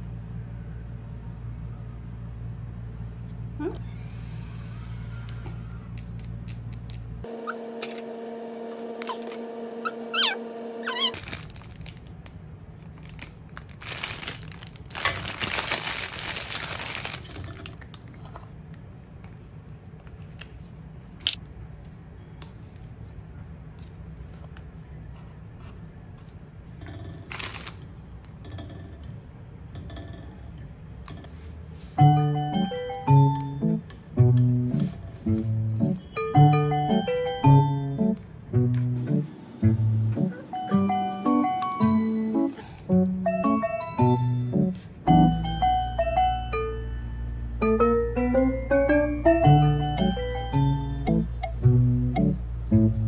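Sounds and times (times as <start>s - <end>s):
plastic bag crinkling: 10.8s - 18.2s, 27.2s - 27.8s
hands handling tubes and packaging: 11.1s - 18.6s
steady low hum: 48.8s - 53.0s.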